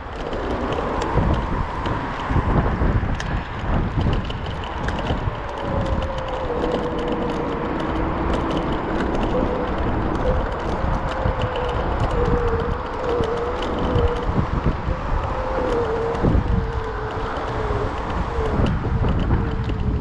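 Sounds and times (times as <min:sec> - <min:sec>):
small clicks and rattles: 0:00.0 - 0:20.0
wind buffeting microphone: 0:00.0 - 0:20.0.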